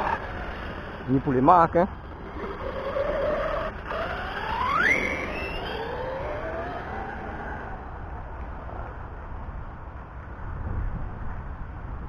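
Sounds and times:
electric motor whining: 2.2 - 7.9.

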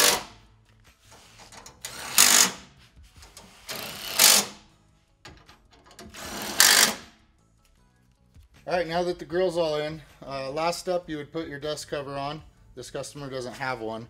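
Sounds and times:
pneumatic air ratchet bursts: 0.0 - 0.3, 1.1 - 4.6, 6.0 - 7.1.

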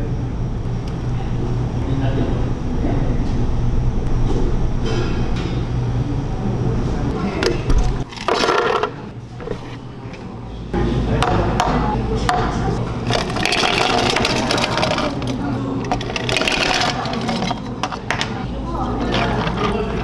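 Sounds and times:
low steady hum: 0.0 - 20.0
ice cubes clattering into cups: 13.0 - 18.4, 19.0 - 20.0.

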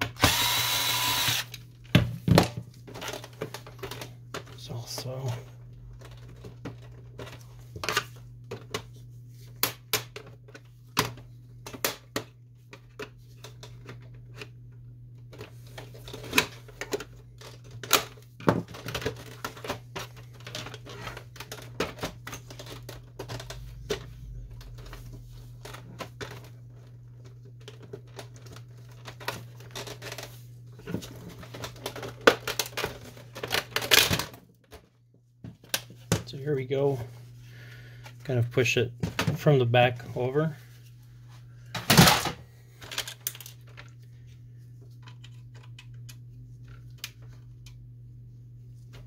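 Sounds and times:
steady low hum: 0.1 - 32.9
plastic parts clicking and snapping: 31.0 - 34.8.

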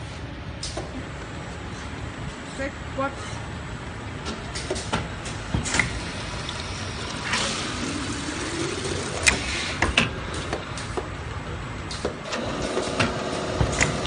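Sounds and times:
liquid pouring into bottle: 6.1 - 9.3.

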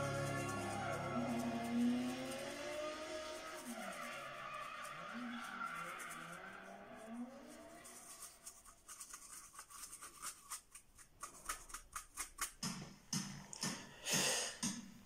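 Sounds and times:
paintbrush scrubbing on canvas: 0.0 - 12.6.

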